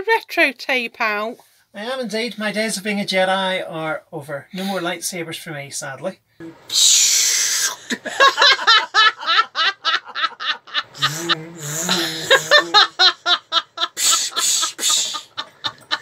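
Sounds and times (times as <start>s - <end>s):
hearty laughter: 7.8s - 16.0s.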